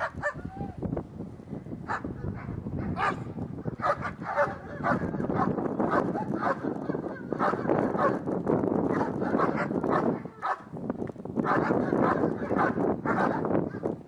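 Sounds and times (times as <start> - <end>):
dog barking: 0.0 - 0.4, 1.9 - 8.2, 8.9 - 10.7, 11.4 - 13.8.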